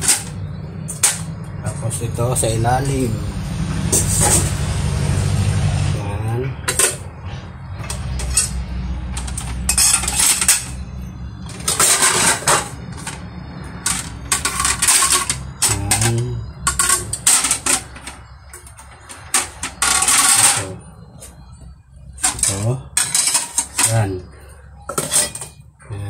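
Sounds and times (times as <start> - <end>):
steady low hum: 0.0 - 26.0
plates clattering in dish rack: 7.8 - 10.8, 11.4 - 13.2, 13.8 - 20.8, 22.2 - 24.1, 24.9 - 25.6.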